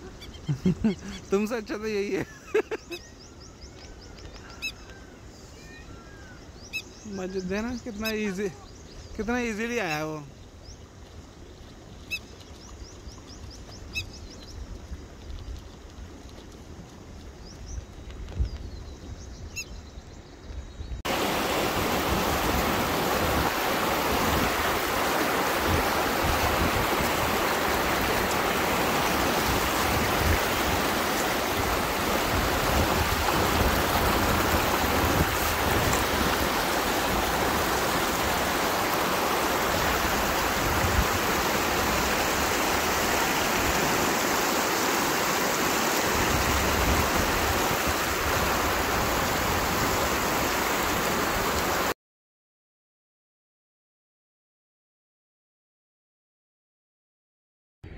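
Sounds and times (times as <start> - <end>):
faint bird chirps: 0.0 - 1.5, 2.5 - 9.3
river rapids rushing over stones: 21.1 - 51.9.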